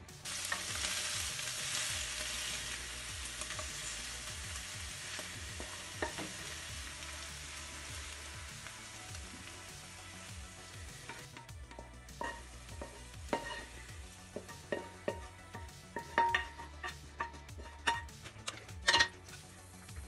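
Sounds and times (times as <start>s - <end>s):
food sizzling in a pan: 0.0s - 20.0s
wooden spoon scraping a pan: 5.1s - 6.6s, 10.8s - 19.5s.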